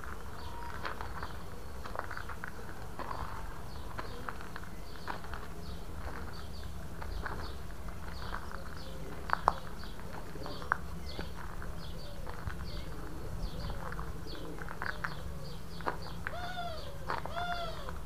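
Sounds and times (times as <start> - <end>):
small birds chirping: 0.0 - 18.0
pigeons cooing: 11.7 - 18.0.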